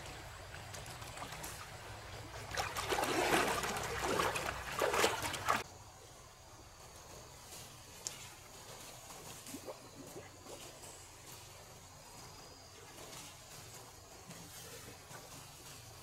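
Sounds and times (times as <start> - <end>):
water splashing and trickling: 0.0 - 5.7, 7.5 - 16.0.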